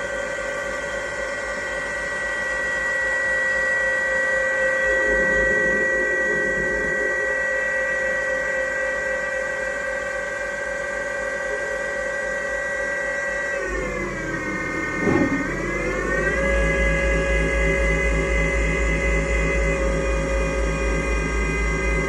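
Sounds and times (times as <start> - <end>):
lathe spindle whine: 0.0 - 22.0
rough low machine noise: 13.8 - 22.0.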